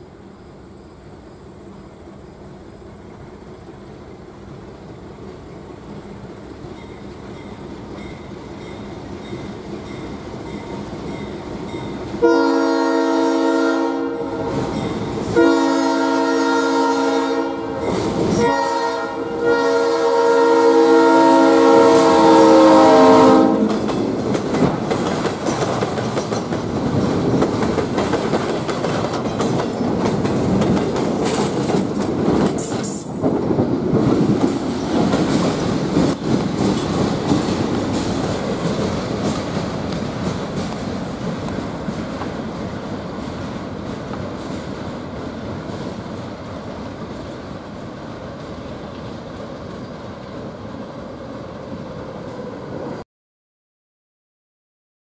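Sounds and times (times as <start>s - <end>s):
train wheels clacking on rails: 6.6s - 12.2s, 14.5s - 15.5s, 23.5s - 50.5s
locomotive air horn blasts: 12.2s - 14.7s, 15.3s - 23.8s.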